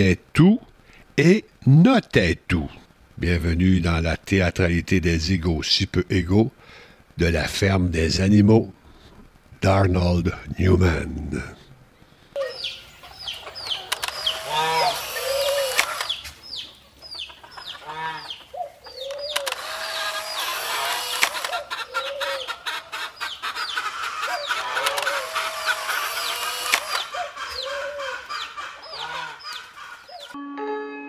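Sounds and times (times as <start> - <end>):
chickens clucking: 12.4 - 30.4
chicks peeping: 12.4 - 30.4.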